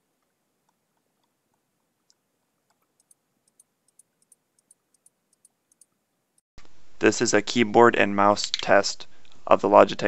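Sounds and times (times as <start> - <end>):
keyboard and mouse clicks: 2.1 - 5.9.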